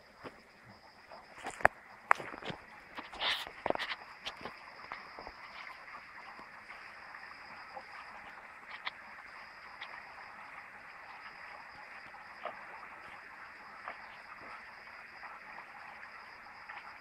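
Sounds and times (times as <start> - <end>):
constant hiss: 0.0 - 17.0
high insect drone: 0.0 - 17.0.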